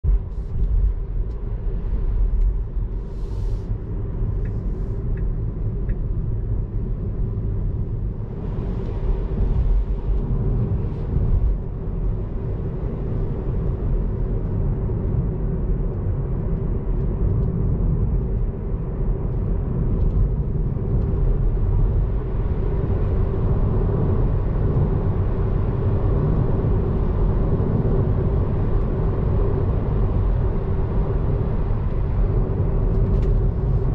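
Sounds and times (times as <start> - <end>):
road and tyre rumble: 0.0 - 33.9.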